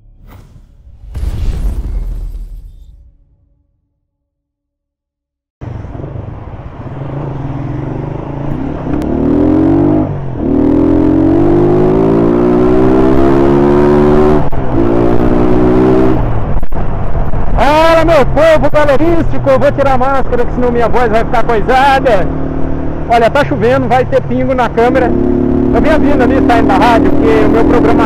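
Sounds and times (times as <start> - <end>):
motorcycle engine accelerating: 6.3 - 16.2, 21.8 - 28.0.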